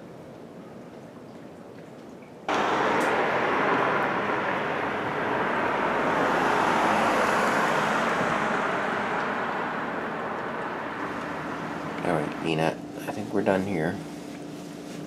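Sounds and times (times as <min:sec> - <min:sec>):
loud steady outdoor rushing: 0:02.5 - 0:13.2.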